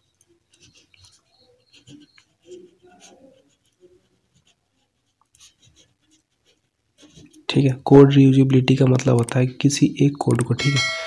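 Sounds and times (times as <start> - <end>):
pen scratching on paper: 0.4 - 7.5.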